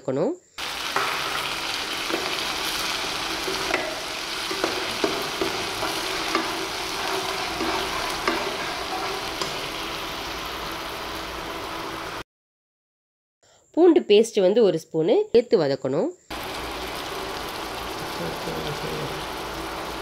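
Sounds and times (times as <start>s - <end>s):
ladle scraping a pan: 0.6s - 10.5s
onions sizzling in oil: 0.6s - 12.2s, 16.3s - 20.0s.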